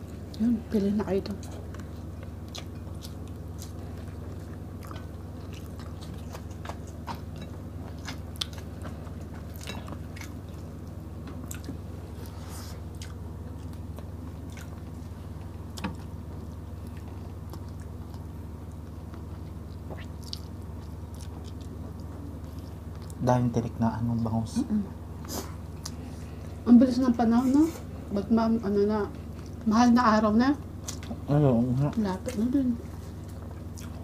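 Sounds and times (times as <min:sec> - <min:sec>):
steady low hum: 0:00.0 - 0:34.0
chewing and wet mouth clicks: 0:02.5 - 0:11.8, 0:16.8 - 0:23.2, 0:33.2 - 0:34.0.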